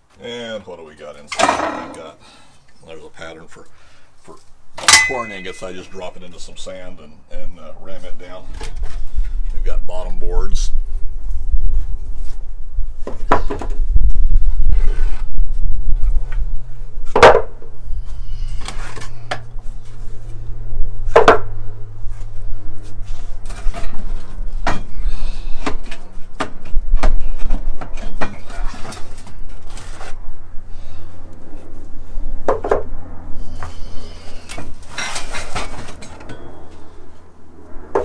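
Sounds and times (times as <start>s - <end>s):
steady low hum: 0.8s - 38.0s
wooden boards knocking and clattering: 13.0s - 13.8s, 17.1s - 17.6s, 21.1s - 21.5s.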